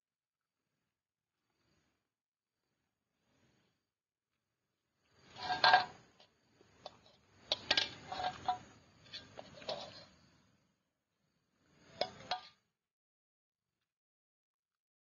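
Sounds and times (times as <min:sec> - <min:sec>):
metal spoon scraping a pan: 0:05.2 - 0:10.1, 0:11.9 - 0:12.6.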